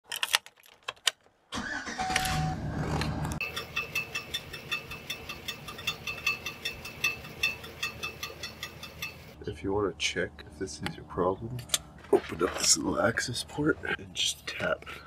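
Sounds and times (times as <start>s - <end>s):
engine cranking and starting: 1.5s - 9.3s
rapid metallic ticking: 3.4s - 9.4s.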